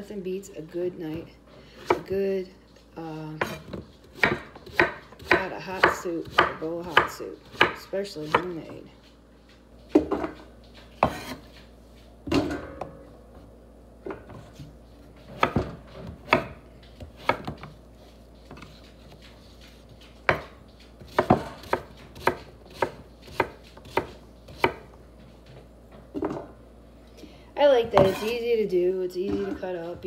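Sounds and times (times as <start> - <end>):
knife chopping on wooden board: 3.4 - 8.7, 11.0 - 11.5, 15.3 - 17.7, 20.3 - 24.9, 27.8 - 28.3.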